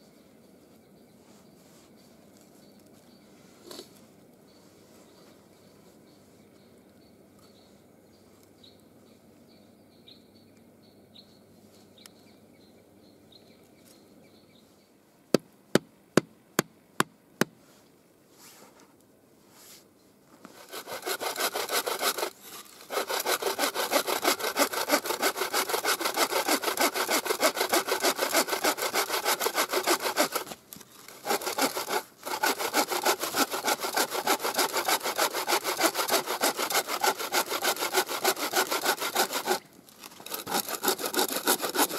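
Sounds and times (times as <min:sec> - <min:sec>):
bow saw cutting log: 0:20.4 - 0:41.9.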